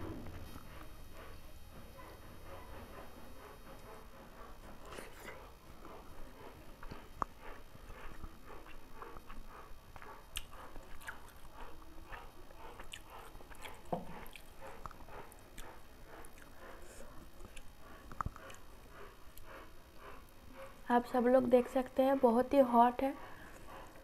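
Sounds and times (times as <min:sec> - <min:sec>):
chewing: 0:04.7 - 0:20.8.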